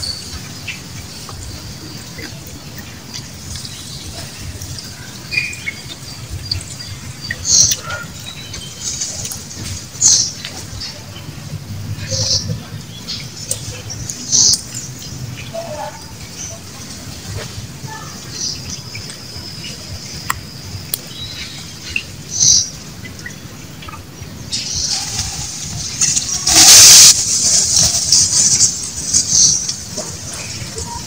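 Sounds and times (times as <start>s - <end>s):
rush of hiss: 24.5s - 30.8s.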